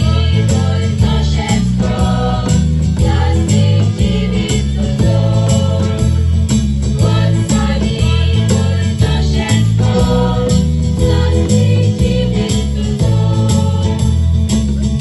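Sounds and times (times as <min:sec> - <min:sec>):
girls singing together: 0:00.0 - 0:06.1, 0:07.0 - 0:14.1
amplified music with beat and bass: 0:00.0 - 0:15.0.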